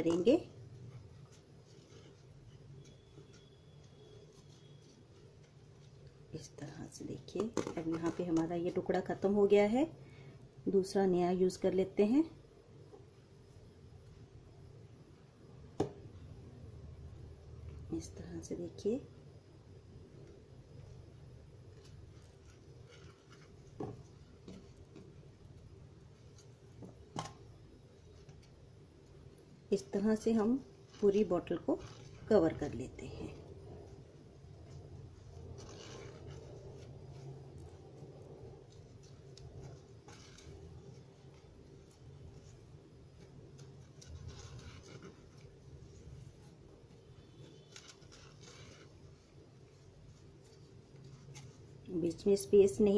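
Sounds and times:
twine rustling: 0.0s - 9.0s, 20.1s - 52.9s.

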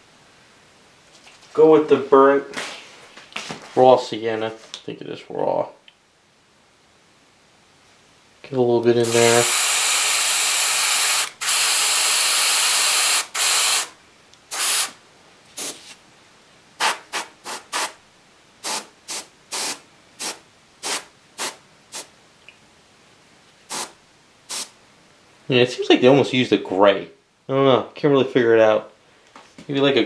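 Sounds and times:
airbrush spraying hiss: 9.0s - 13.9s, 14.5s - 15.0s, 15.6s - 16.0s, 16.8s - 18.0s, 18.6s - 22.1s, 23.6s - 24.8s.

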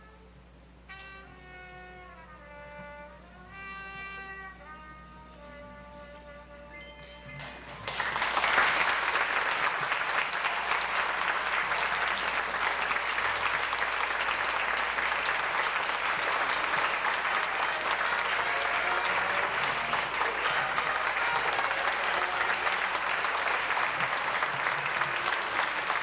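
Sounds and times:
closing music: 0.0s - 26.0s
audience applauding: 7.0s - 26.0s.

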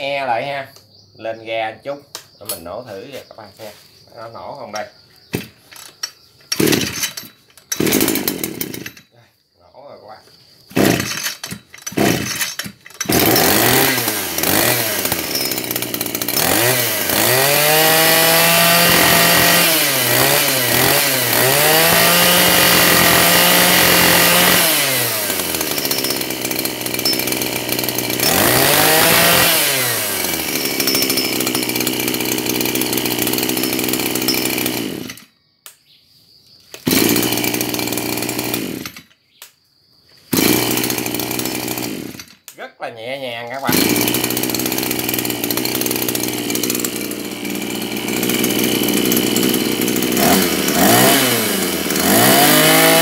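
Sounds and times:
brush-cutter engine revving and idling: 5.4s - 9.1s, 10.7s - 35.3s, 36.8s - 39.1s, 40.3s - 42.5s, 43.4s - 53.0s
brush-cutter pull-start: 5.4s - 9.1s, 10.7s - 35.3s, 36.8s - 39.1s, 40.3s - 42.5s, 43.5s - 53.0s.

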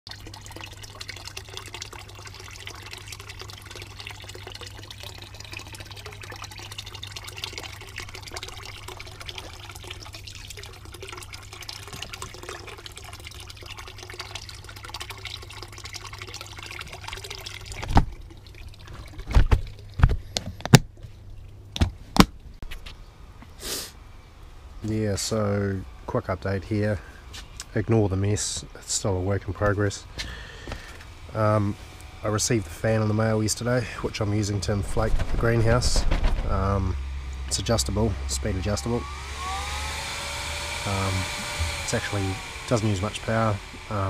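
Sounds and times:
water splashing and trickling: 0.1s - 21.8s, 27.7s - 39.0s
steady low hum: 0.1s - 44.0s
sharp knocks and bumps: 35.0s - 36.7s.

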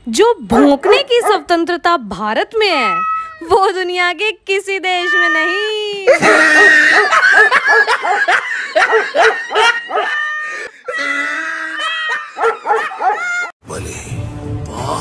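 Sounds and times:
dog barking and yapping: 0.5s - 1.5s, 6.3s - 10.4s, 12.1s - 13.5s
drawn-out dog call: 11.8s - 13.5s.

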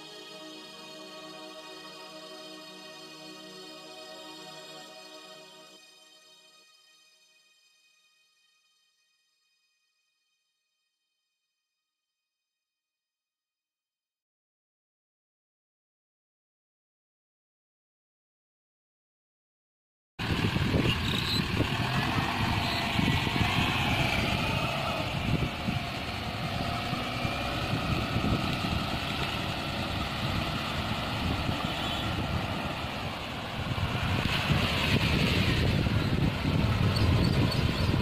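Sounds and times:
car engine revving: 20.2s - 38.0s.

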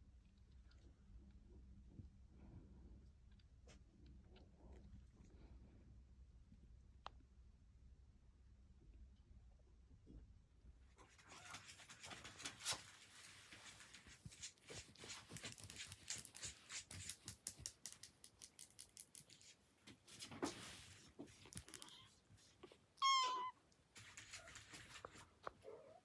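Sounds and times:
claws scratching on fleece blanket: 11.2s - 18.0s, 23.9s - 25.5s.

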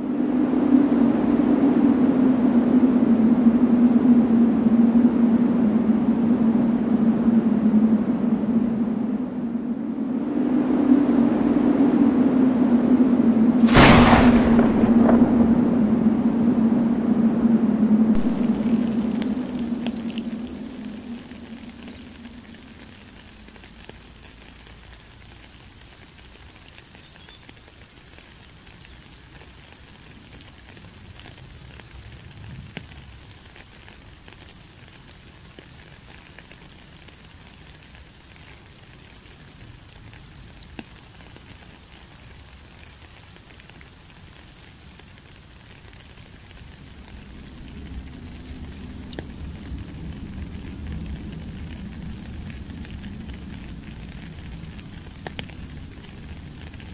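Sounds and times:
rain pattering on wet gravel: 13.6s - 15.8s, 18.1s - 56.9s.

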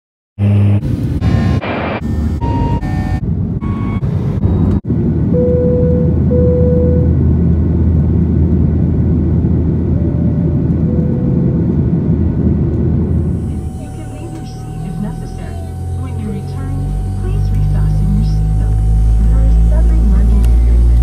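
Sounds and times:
jet engine cabin rumble: 0.8s - 21.0s
faint steady whine: 4.4s - 21.0s.

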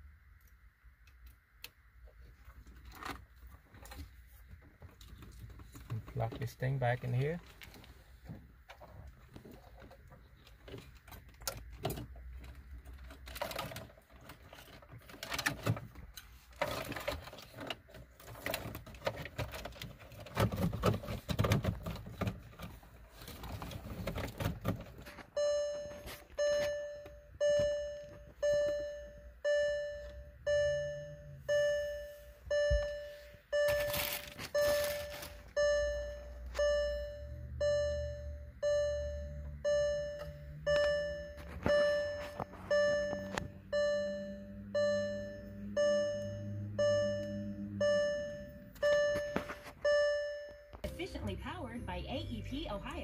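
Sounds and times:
car warning chime dinging: 25.3s - 53.0s.

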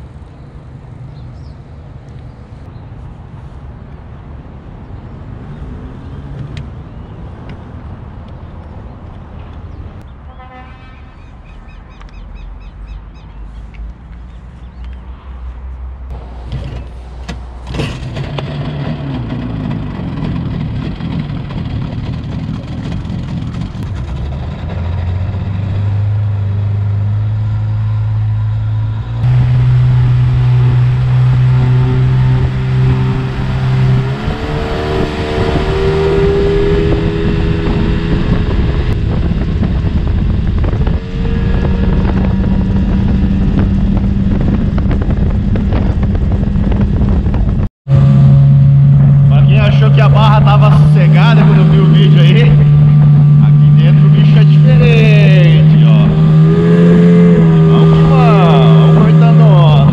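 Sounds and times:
water and wind rushing: 29.2s - 59.9s
outboard motor running: 47.9s - 59.9s.

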